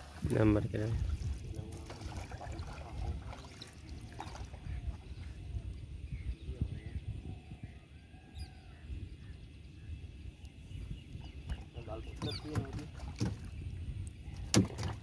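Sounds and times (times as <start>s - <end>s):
water rumble: 0.0s - 15.0s
wind: 0.0s - 15.0s
faint bird calls: 3.3s - 14.6s.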